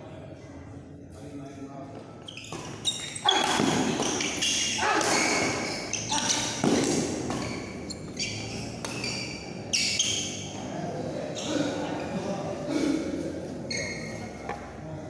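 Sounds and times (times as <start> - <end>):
voices: 0.0 - 15.0
shoes squeaking on court: 2.2 - 10.5, 13.7 - 14.7.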